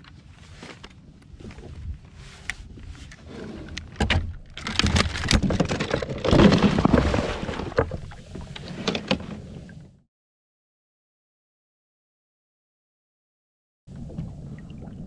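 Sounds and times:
knocks and clatters on kayak: 0:03.7 - 0:09.6
water splashing: 0:06.2 - 0:09.0.

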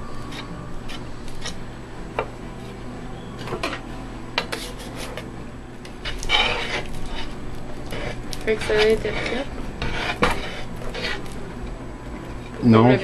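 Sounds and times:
glass muller grinding paste: 0:00.0 - 0:01.6, 0:04.5 - 0:12.6
palette knife scraping on glass: 0:00.1 - 0:01.6, 0:04.4 - 0:11.4.

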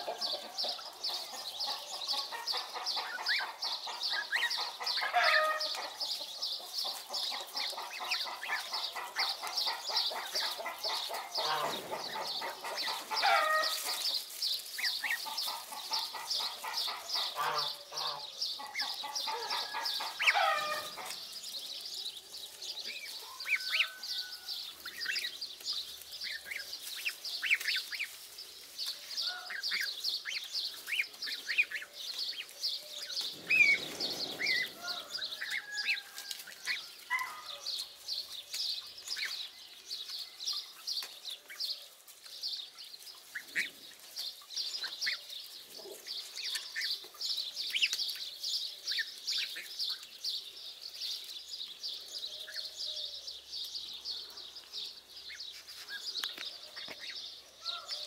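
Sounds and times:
goslings peeping: 0:00.0 - 0:21.3, 0:22.9 - 0:28.2, 0:29.2 - 0:37.6.

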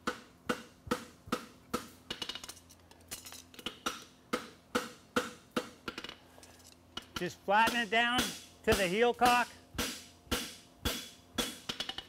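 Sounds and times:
hammer striking hot metal on anvil: 0:07.1 - 0:11.7.

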